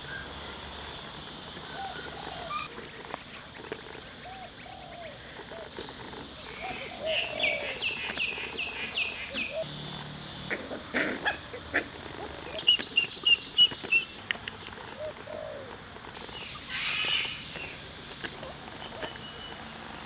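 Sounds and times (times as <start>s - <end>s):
bird chirping: 4.2s - 10.5s, 12.5s - 17.8s.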